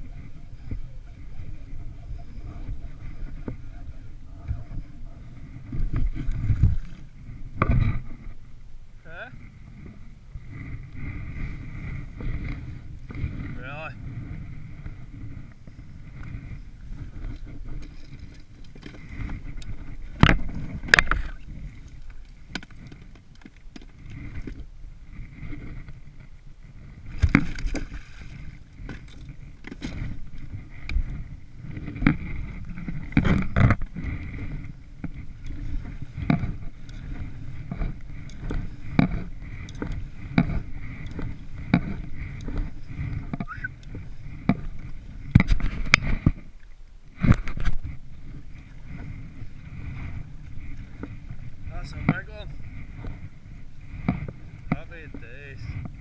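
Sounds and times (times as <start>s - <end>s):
paddle knocking against hull: 17.0s - 21.8s, 27.1s - 46.6s.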